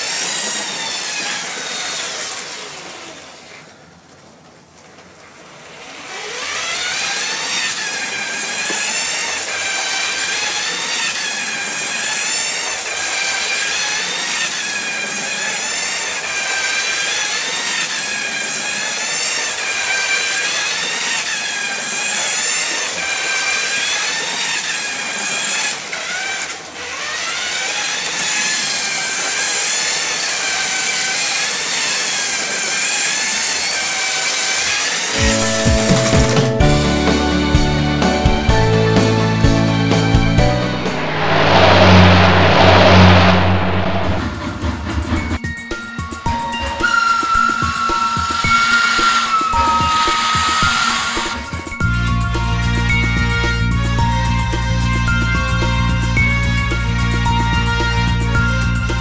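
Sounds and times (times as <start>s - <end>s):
toy train motor whining: 0.0s - 3.6s, 5.6s - 35.3s, 46.9s - 51.8s.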